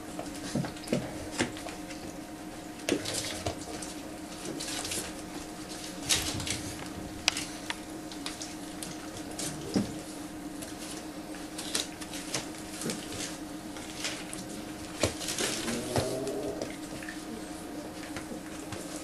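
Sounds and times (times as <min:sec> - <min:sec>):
puppy claws scrabbling on plastic: 0:11.6 - 0:17.2
puppy whine: 0:15.4 - 0:18.7.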